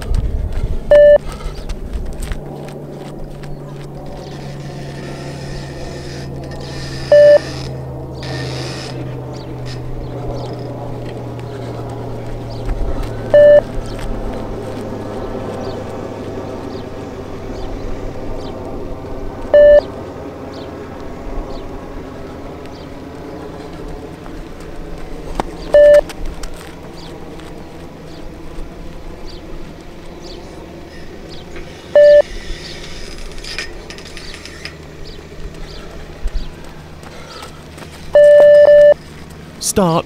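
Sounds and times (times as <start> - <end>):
low background hum: 0.0 - 40.0
short electronic beeps: 0.9 - 1.2, 7.1 - 7.5, 13.3 - 13.6, 19.6 - 19.9, 25.8 - 26.0, 32.0 - 32.2, 38.2 - 39.0.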